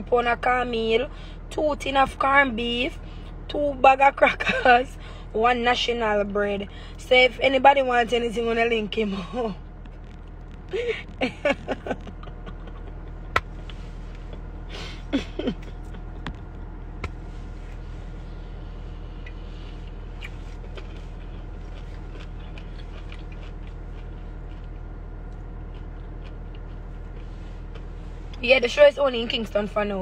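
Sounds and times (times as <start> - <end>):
car cabin hum: 0.0 - 30.0
woman laughing: 4.3 - 4.8, 10.7 - 13.4, 14.7 - 16.1.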